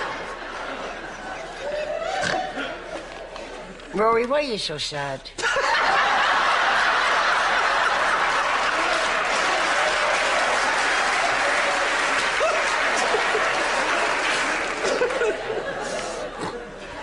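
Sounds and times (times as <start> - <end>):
audience applauding: 6.0 - 16.2.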